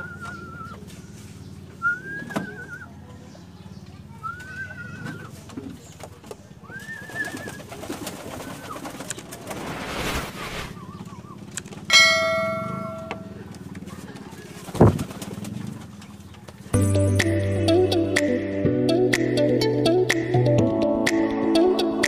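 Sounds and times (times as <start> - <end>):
whoosh: 9.4 - 10.8
bright bell chime: 11.9 - 13.4.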